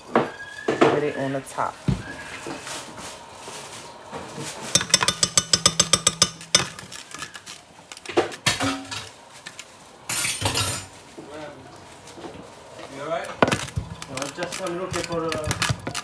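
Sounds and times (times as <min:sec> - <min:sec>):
fast sharp clicks and clinks: 0:04.8 - 0:06.9.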